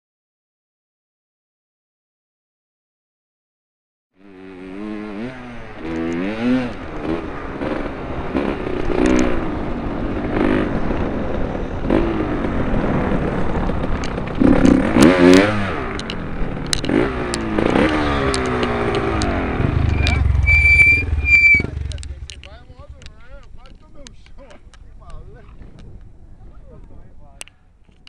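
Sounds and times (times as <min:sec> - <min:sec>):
motocross engine revving: 0:04.2 - 0:23.1
clicks and knocks from bike: 0:16.0 - 0:19.3, 0:21.9 - 0:26.1.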